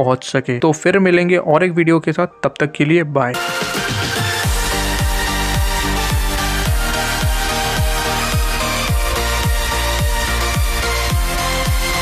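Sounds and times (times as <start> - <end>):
electronic dance music: 3.3 - 12.0
held synth notes: 3.3 - 12.0
deep kick drum: 4.4 - 12.0.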